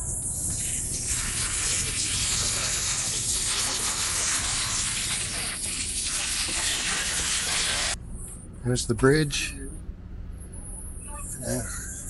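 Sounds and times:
steady rushing hiss: 0.0 - 8.0.

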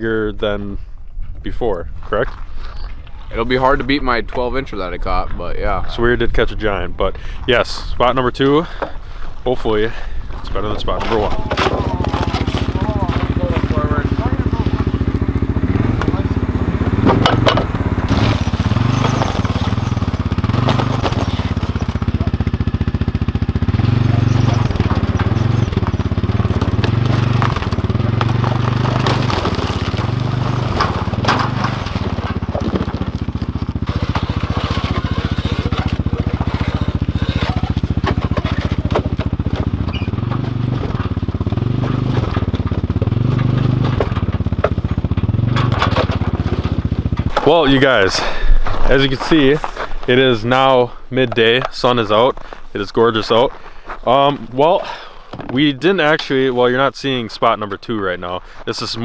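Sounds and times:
atv engine revving: 10.8 - 53.2
ice crunching: 10.9 - 15.2, 17.9 - 44.6, 45.9 - 55.7
knocks from wooden planks: 16.8 - 22.0, 24.3 - 49.0.

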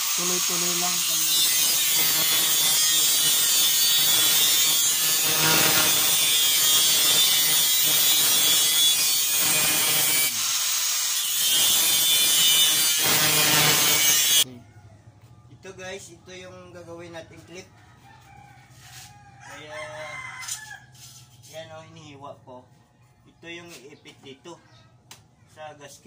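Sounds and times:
angle grinder cutting metal: 0.0 - 14.5.

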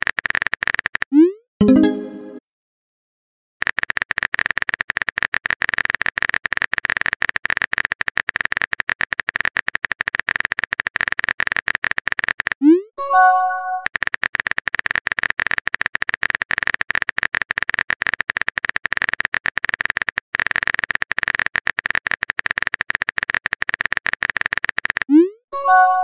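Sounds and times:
notification chime: 1.6 - 2.4, 13.0 - 13.9, 25.6 - 26.0
keyboard typing clicks: 3.6 - 26.0.

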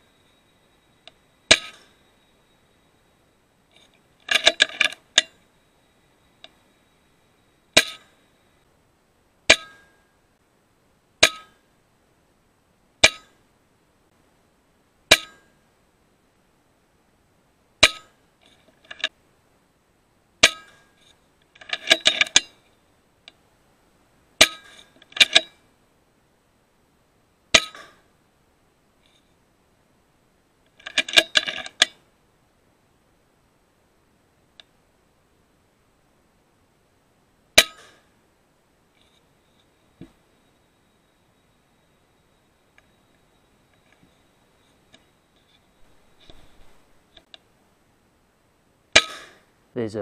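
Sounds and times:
metallic ringing: 9.5 - 10.2, 11.2 - 11.6, 15.1 - 15.6, 20.4 - 21.0.

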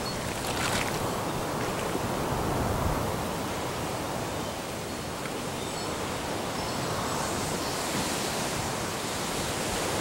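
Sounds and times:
rain: 0.0 - 7.4
rushing wind: 0.0 - 10.0.

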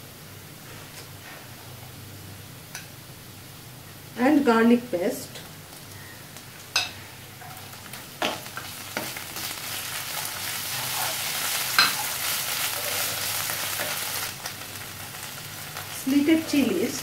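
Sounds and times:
onions sizzling in hot oil: 2.6 - 17.0.

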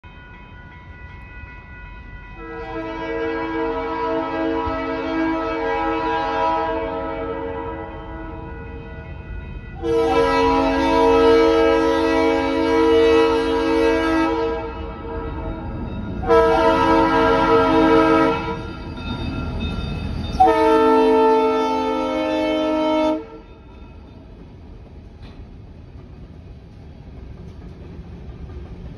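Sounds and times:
passing train rumble: 0.0 - 28.9
locomotive air horn blasts: 2.4 - 9.1, 9.8 - 15.5, 16.2 - 18.7, 20.4 - 23.5.

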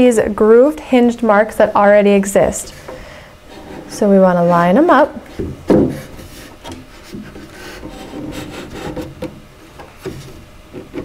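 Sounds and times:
wooden panel scraping on wood: 2.8 - 4.7, 5.3 - 9.4.

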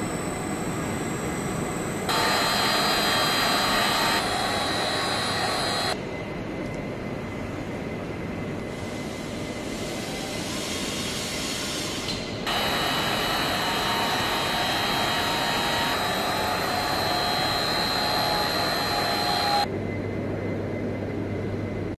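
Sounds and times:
machinery whirring: 0.0 - 6.2, 8.6 - 19.7
high steady whine: 0.0 - 10.4, 11.9 - 22.0.

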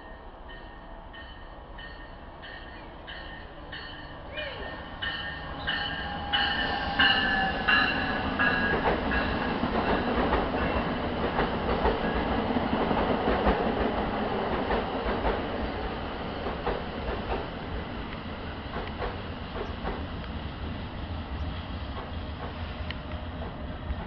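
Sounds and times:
train rolling rumble: 0.0 - 24.0
train wheel squeals: 0.5 - 9.4
wheels clacking over rail joints: 5.0 - 20.4.

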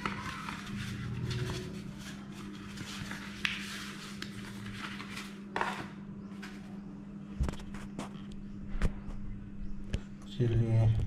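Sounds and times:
paper rustling: 0.0 - 6.7
steady low hum: 0.0 - 11.0.

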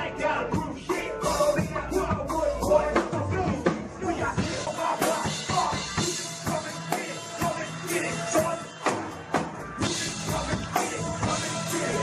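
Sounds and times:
person rapping into a microphone: 0.0 - 8.8
backing track with drum beat: 0.0 - 12.0.

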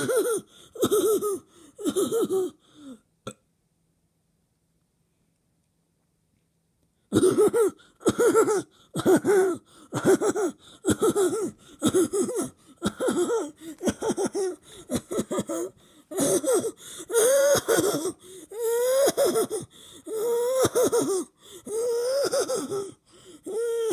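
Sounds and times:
person making wheezy vocal noise: 0.0 - 3.0, 7.1 - 23.9.

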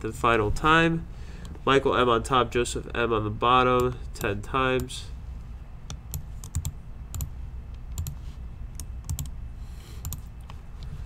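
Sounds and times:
keyboard and mouse clicks: 5.9 - 9.3, 10.0 - 10.9.

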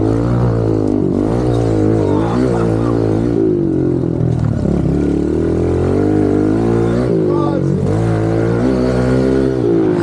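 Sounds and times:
pit bike engine revving: 0.0 - 10.0.

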